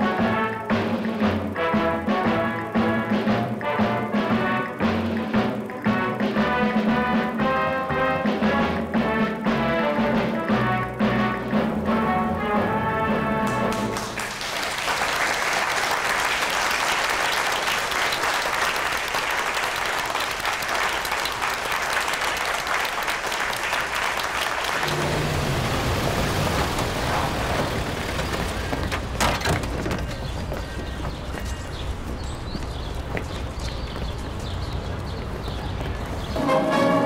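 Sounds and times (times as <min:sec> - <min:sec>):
crowd applauding: 0:13.2 - 0:31.5.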